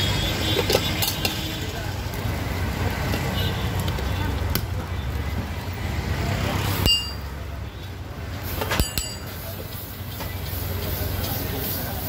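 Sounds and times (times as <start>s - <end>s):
low street rumble: 0.0s - 12.0s
metal utensils clinking: 0.6s - 1.5s, 8.6s - 9.4s.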